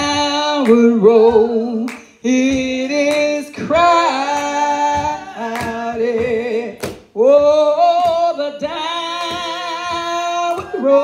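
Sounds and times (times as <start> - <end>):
woman singing unaccompanied: 0.0 - 11.0.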